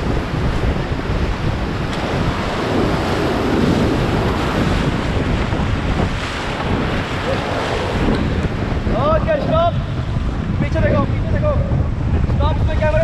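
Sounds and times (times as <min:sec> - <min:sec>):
whitewater rapids rushing: 0:00.0 - 0:10.9
wind buffeting microphone: 0:00.0 - 0:13.0.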